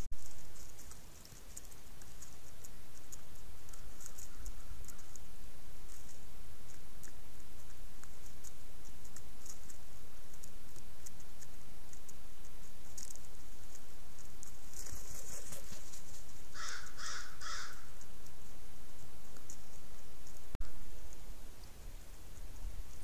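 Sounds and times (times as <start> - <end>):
low hum: 0.0 - 23.0
rustle: 0.0 - 23.0
crow cawing: 16.5 - 17.9.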